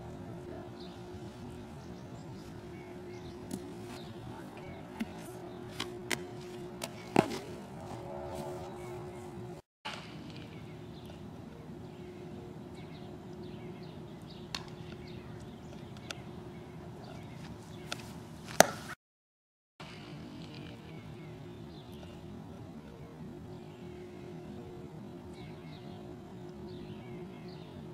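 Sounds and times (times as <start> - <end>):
outdoor background noise: 0.0 - 19.0, 19.8 - 27.9
bat cracking against ball: 5.0 - 8.0, 17.9 - 19.0.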